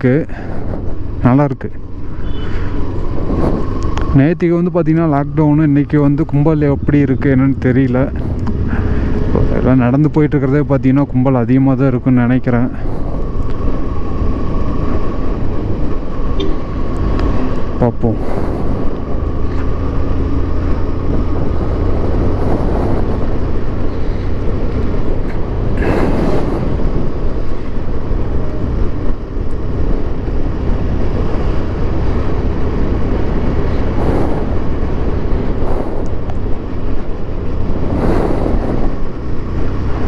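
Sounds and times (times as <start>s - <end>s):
motorcycle engine: 0.0s - 10.6s
wind rumble on microphone: 0.0s - 40.0s.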